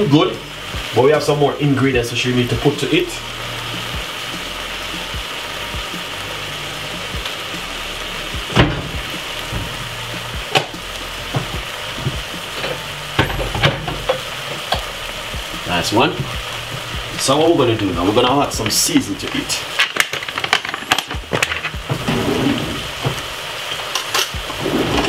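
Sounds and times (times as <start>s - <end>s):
potatoes sizzling in a saucepan: 0.0s - 25.0s.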